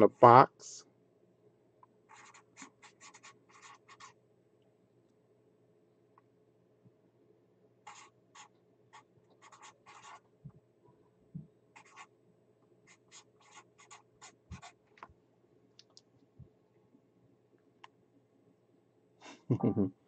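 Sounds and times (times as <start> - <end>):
pen scratching on paper: 2.1 - 4.2, 7.8 - 10.2, 11.8 - 12.1, 12.9 - 14.8.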